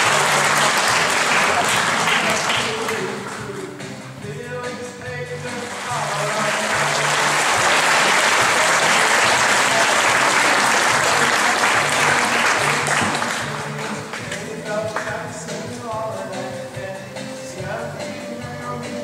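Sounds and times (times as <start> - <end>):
audience applauding: 0.0 - 3.5, 5.5 - 15.1.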